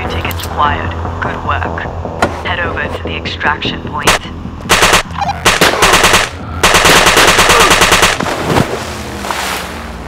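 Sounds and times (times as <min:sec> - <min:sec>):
rapid automatic blaster fire: 0:04.1 - 0:08.3.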